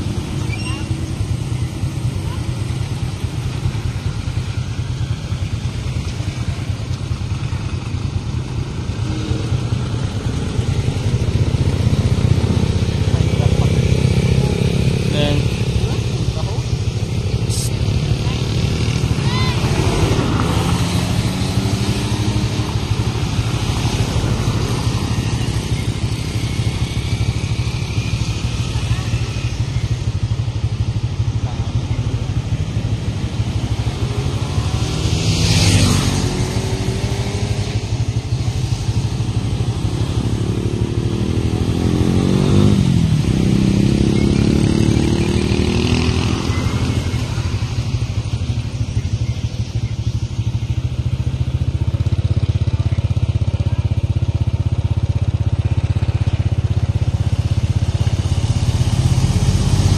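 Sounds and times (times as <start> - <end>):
vehicles passing by: 0.0 - 59.9.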